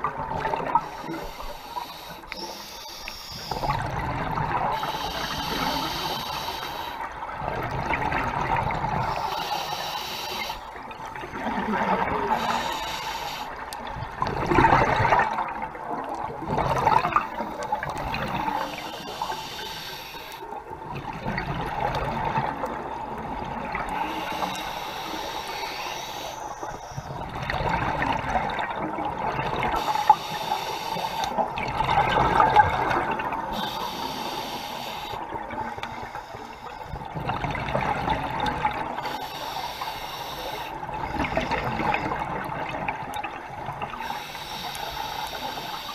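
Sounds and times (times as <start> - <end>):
scuba regulator inhalations: 0.6 - 3.8, 4.6 - 7.1, 9.1 - 10.7, 12.2 - 13.7, 17.1 - 20.5, 23.9 - 27.1, 29.7 - 31.4, 33.5 - 37.0, 39.0 - 42.1, 44.0 - 45.9
exhaled bubbles bursting: 14.0 - 18.6, 31.5 - 33.5.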